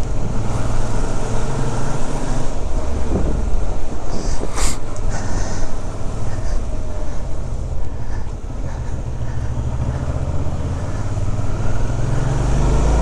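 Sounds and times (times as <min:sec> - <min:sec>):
motorcycle engine at low revs: 0:00.0 - 0:04.2, 0:05.7 - 0:13.0
wind and road noise: 0:00.0 - 0:13.0.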